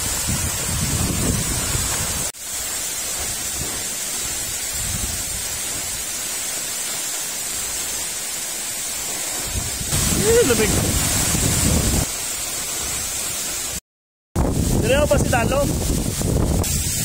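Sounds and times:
wind buffeting microphone: 0.0 - 2.3, 3.4 - 6.0, 9.4 - 12.1, 14.4 - 17.0
waterfall rushing into pool: 0.0 - 13.8, 14.4 - 17.0.

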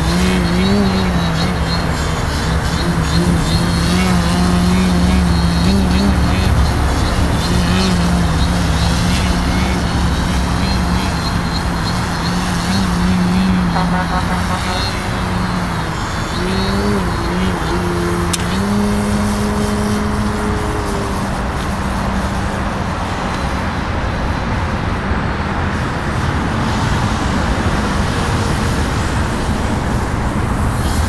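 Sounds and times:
model plane motor buzzing: 0.0 - 22.8.

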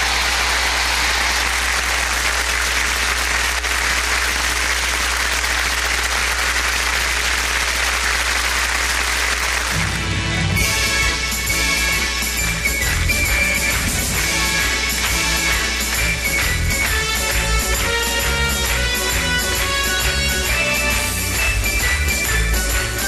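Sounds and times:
audience applauding: 0.0 - 23.0
tarantella dance music: 9.6 - 23.0.

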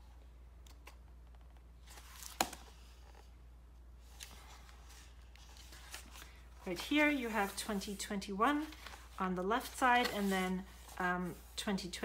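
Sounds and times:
pages turning and rustling: 0.7 - 3.4, 4.0 - 11.8
sharp page snap: 2.2 - 2.6.

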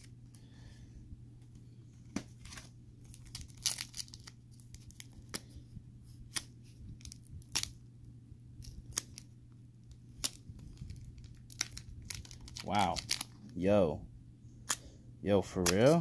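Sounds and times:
foil wrapper crinkling: 2.3 - 5.5, 6.3 - 7.8, 8.6 - 13.6.

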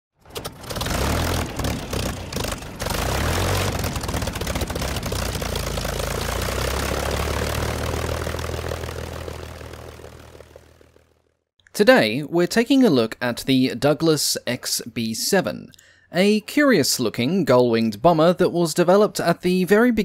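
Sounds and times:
propeller aircraft engine running: 0.1 - 11.5.

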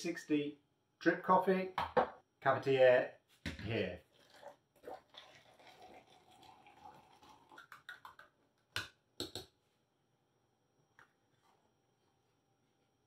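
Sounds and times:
water pouring from kettle: 4.0 - 8.3.

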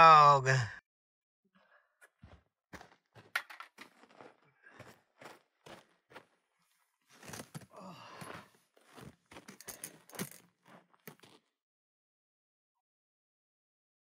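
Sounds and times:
cooking gear clicks and clinks: 9.4 - 11.2.

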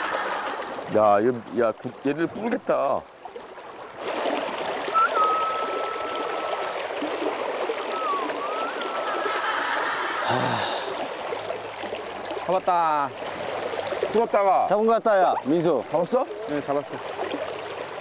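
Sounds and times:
river water rushing: 0.0 - 18.0
person whistling: 4.9 - 6.8, 7.8 - 9.3.

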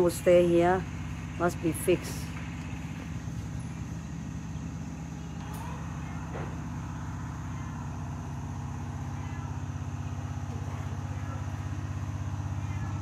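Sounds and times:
low pulsing machine drone: 0.0 - 13.0.

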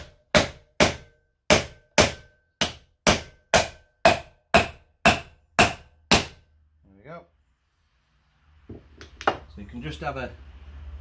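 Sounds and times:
hammer striking steel tool: 0.0 - 6.4.

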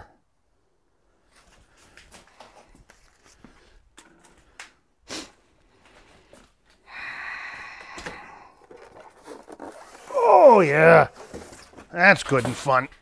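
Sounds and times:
foam scraping against cardboard: 8.7 - 12.9.

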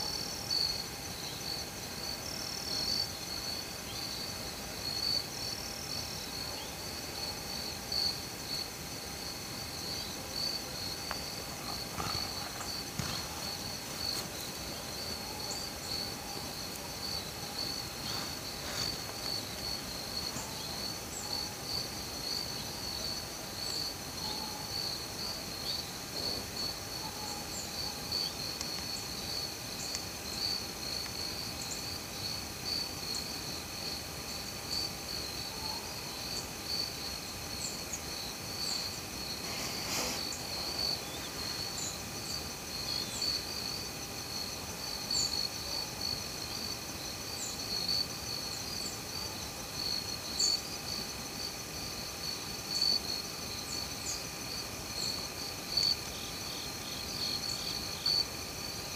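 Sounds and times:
crickets and insects trilling: 0.0 - 58.9
soft rustle: 11.0 - 15.7, 17.6 - 19.8, 39.1 - 41.8.

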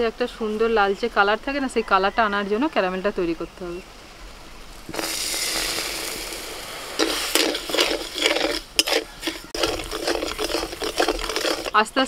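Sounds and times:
sugar pouring into metal pan: 4.8 - 11.9
metal spatula scraping pan: 4.9 - 12.0.

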